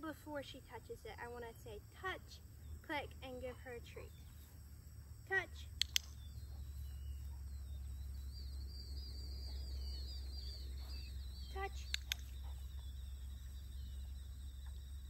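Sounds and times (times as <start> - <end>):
dog-training clicker clicks: 5.7 - 6.2, 11.8 - 12.4
bird twittering: 5.8 - 15.0.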